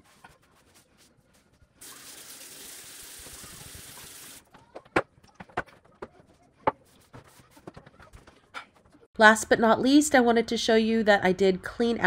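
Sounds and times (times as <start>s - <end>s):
faucet running into sink: 1.8s - 4.4s.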